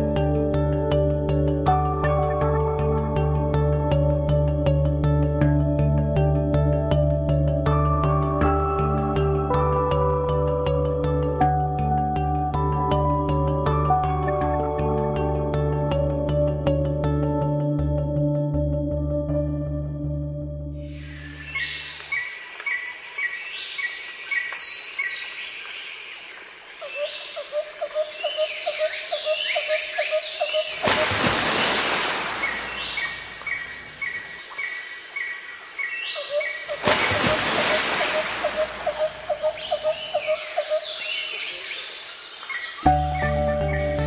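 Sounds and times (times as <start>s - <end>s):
rising and falling bird chirps: 31.6s - 36.8s, 37.9s - 44.0s
low pulsing bird trill: 38.2s - 41.6s, 42.7s - 44.0s.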